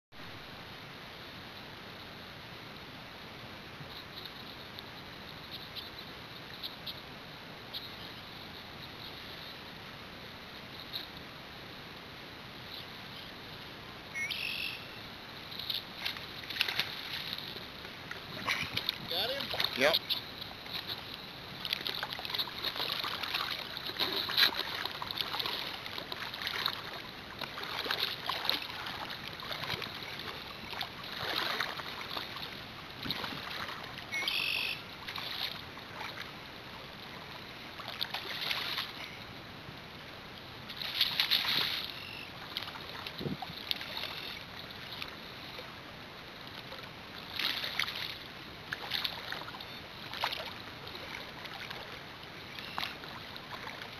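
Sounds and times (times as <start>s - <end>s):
water sloshing and lapping: 13.6s - 39.3s, 40.0s - 53.9s.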